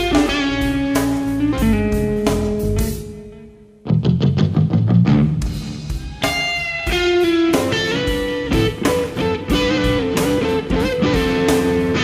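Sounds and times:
lead electric guitar melody: 0:00.0 - 0:12.0
live rock band playing: 0:00.0 - 0:12.0.

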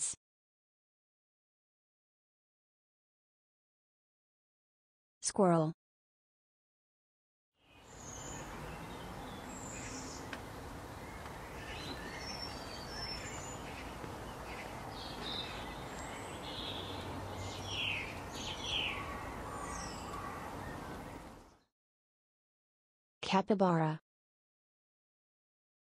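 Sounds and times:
birds chirping: 0:07.6 - 0:21.7.

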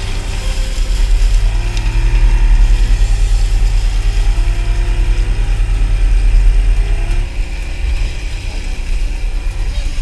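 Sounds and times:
boat engine low hum: 0:00.0 - 0:10.0.

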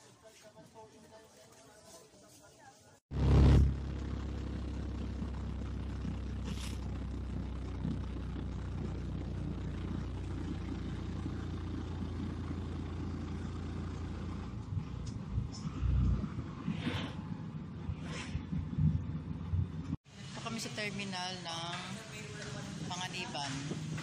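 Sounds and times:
vehicle engine and road noise: 0:03.1 - 0:20.0.

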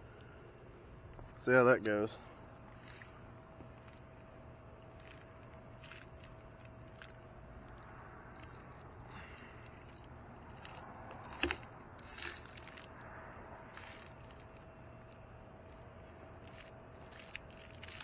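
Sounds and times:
faint steady tone: 0:00.0 - 0:18.0
scuffs and rustles of climbing gear: 0:02.6 - 0:04.2, 0:09.2 - 0:12.9, 0:13.7 - 0:18.0.

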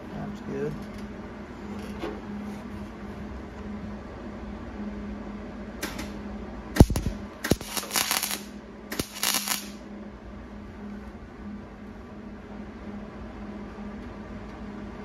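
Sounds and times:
welder low hum: 0:01.2 - 0:15.0
sharp pop: 0:06.8 - 0:08.3
crackling welding arc: 0:06.8 - 0:09.8.

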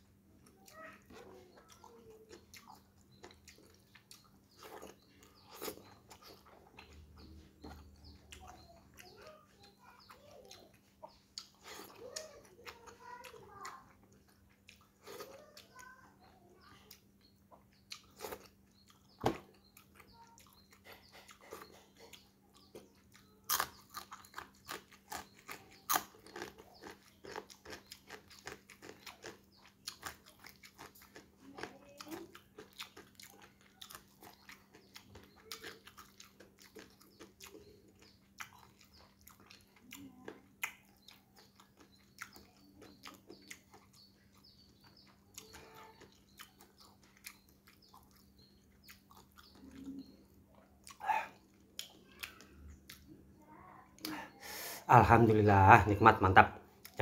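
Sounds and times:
chewing crispy fried fish: 0:00.0 - 0:57.0.

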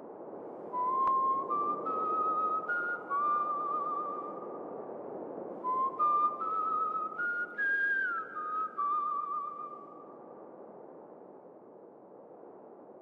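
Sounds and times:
soft steady hiss: 0:00.0 - 0:13.0
whistle-like tune: 0:00.8 - 0:04.5, 0:05.6 - 0:09.9.

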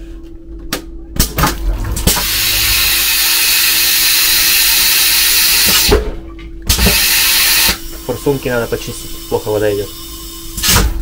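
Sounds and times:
water spraying with loud hiss: 0:06.8 - 0:10.7.

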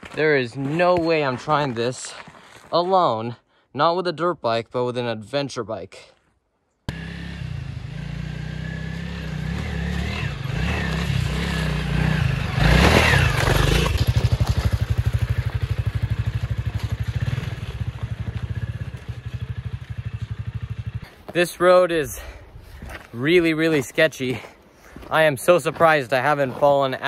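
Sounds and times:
motorcycle engine running: 0:06.9 - 0:21.0.

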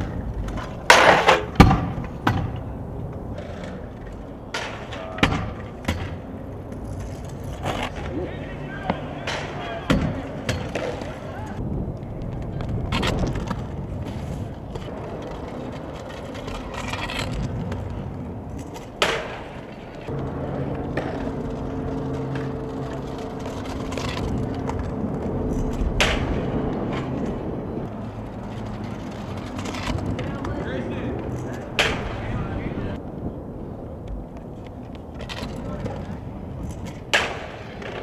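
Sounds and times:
scooter wheels rolling on concrete: 0:00.0 - 0:38.0.

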